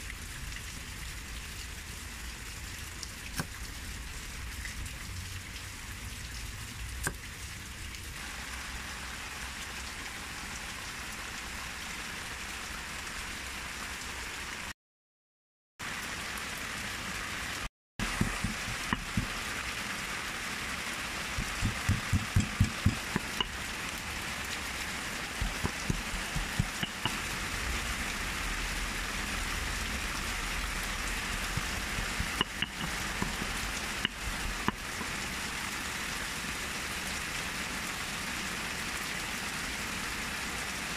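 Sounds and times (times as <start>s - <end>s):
pestle pounding in stone mortar: 18.0s - 19.3s, 21.4s - 23.6s, 25.4s - 27.2s, 31.5s - 33.5s
cleaver chopping on wooden board: 18.1s - 19.3s, 21.4s - 23.6s, 25.4s - 27.2s, 31.6s - 33.5s.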